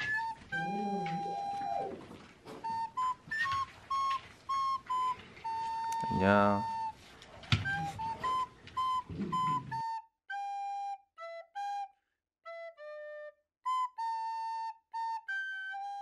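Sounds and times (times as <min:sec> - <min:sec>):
faint room sound: 0:00.0 - 0:09.9.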